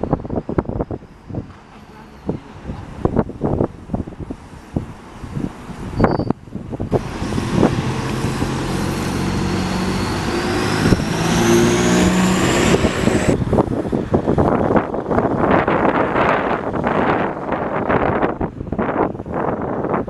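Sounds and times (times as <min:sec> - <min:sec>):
bus accelerating past: 0:06.8 - 0:15.2
whine rising in pitch: 0:06.9 - 0:13.4.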